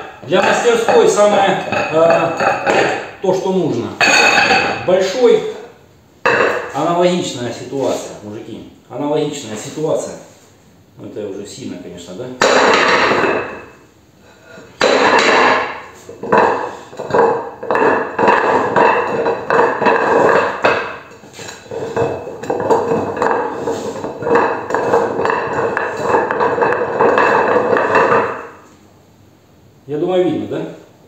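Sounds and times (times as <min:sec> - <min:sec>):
metal disc scraping on concrete: 0:14.8 - 0:28.7.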